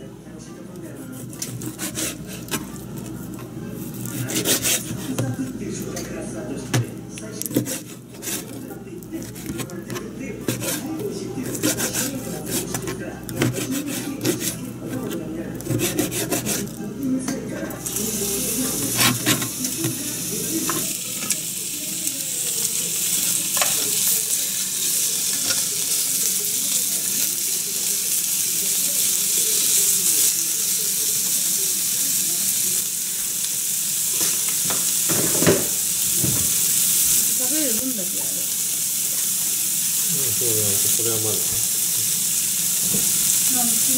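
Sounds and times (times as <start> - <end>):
food sizzling in frying pan: 1.2 - 6.1, 6.7 - 43.9
knife cutting on plastic board: 9.2 - 16.7.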